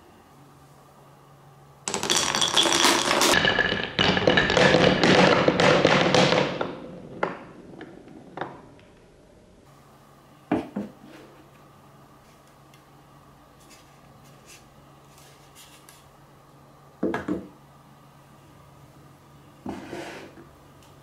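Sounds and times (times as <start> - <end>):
marbles clicking into wooden tray: 1.9 - 8.5
marbles clattering down wooden run: 1.9 - 8.6.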